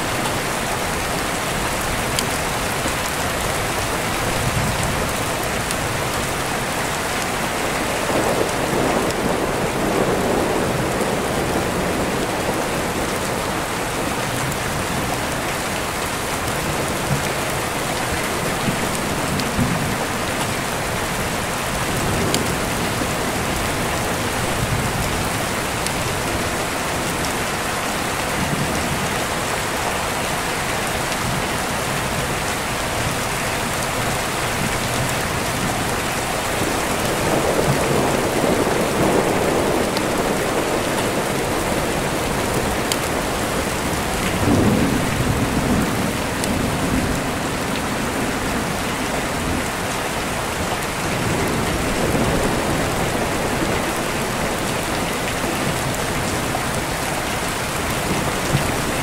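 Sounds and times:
steady rain: 0.0 - 59.0
deep rolling thunder: 7.6 - 13.8, 36.5 - 49.8.

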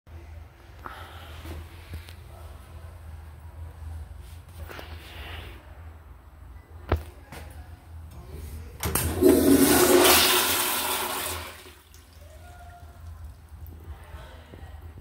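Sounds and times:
toilet flushing: 8.9 - 12.2.

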